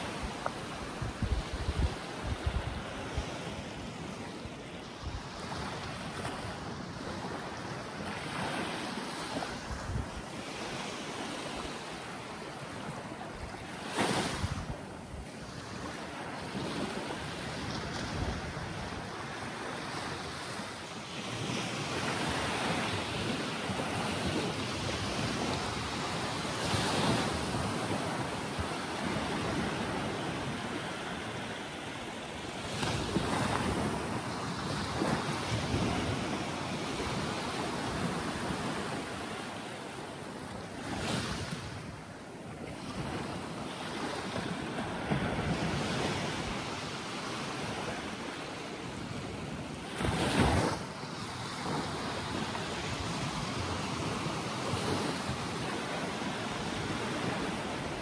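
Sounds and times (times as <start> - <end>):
wind buffeting microphone: 0.0 - 8.7, 9.3 - 10.4, 12.9 - 20.6, 32.6 - 39.2
waves washing on sandy beach: 0.0 - 58.0.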